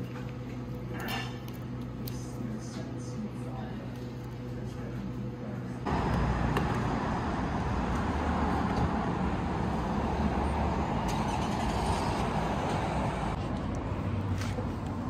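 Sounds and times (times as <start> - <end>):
cars passing on road: 5.9 - 15.0.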